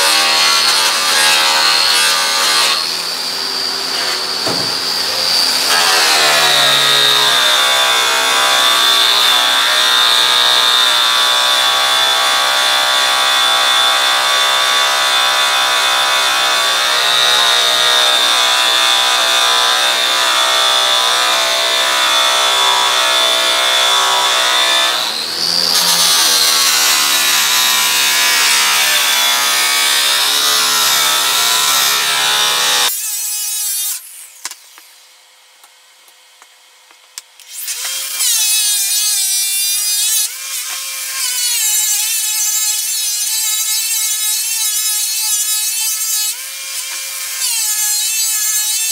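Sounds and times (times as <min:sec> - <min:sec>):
electric buffer whining: 0:00.0 - 0:10.6.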